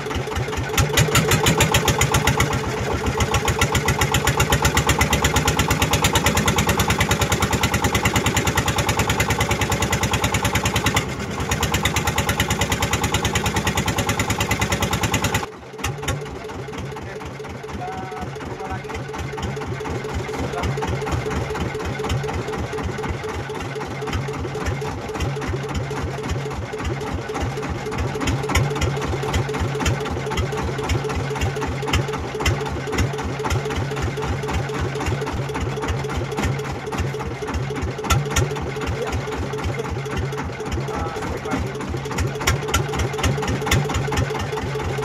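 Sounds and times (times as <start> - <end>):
boat engine idling: 0.0 - 45.0.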